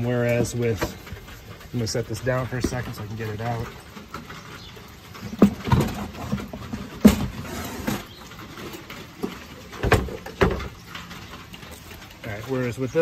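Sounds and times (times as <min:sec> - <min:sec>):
knocks and thumps of handling gear: 0:05.2 - 0:10.9.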